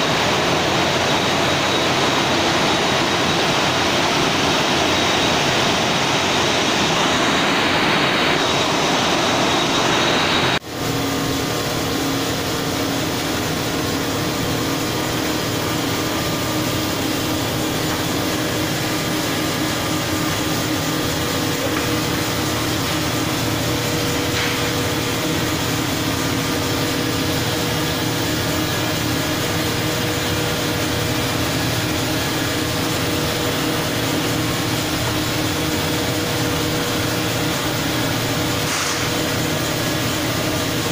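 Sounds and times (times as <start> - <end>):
machinery drone: 0.0 - 40.9
loud hiss: 36.4 - 40.5.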